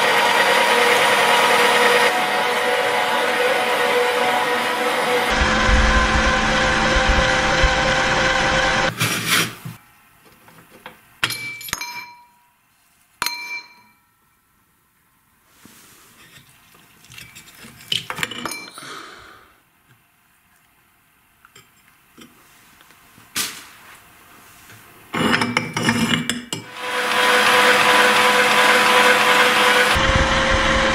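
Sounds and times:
meat grinder motor humming: 0:00.0 - 0:08.9, 0:26.7 - 0:30.9.

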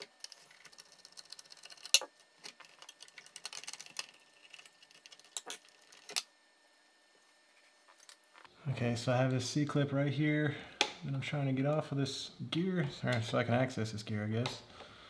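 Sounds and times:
metal parts clicking and clinking: 0:00.0 - 0:06.3.

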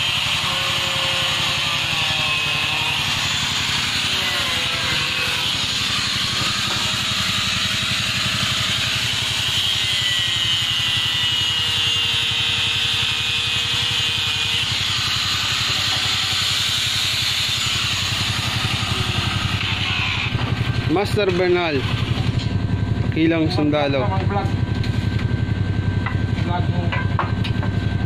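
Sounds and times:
angle grinder cutting metal: 0:00.0 - 0:22.6
low rapid pulsing: 0:20.3 - 0:28.0.

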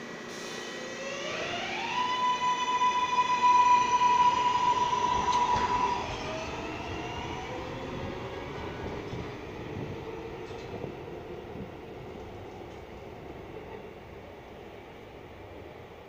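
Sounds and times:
train motor whine: 0:00.1 - 0:10.9
train wheels rumbling on rail: 0:03.1 - 0:16.0.

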